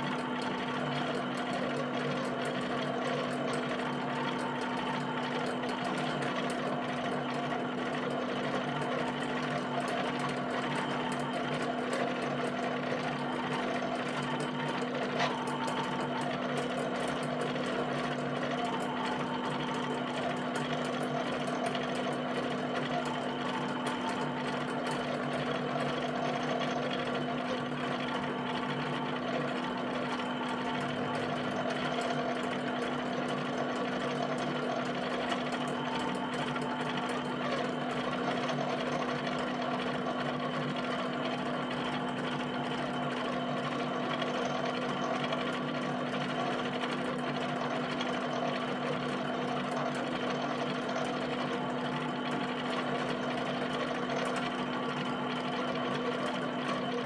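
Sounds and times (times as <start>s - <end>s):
steady hum: 0.0s - 57.0s.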